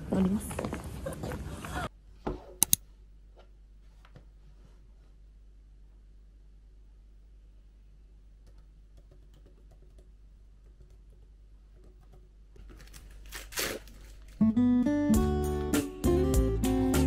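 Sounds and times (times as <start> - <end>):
acoustic guitar music: 14.4 - 17.0.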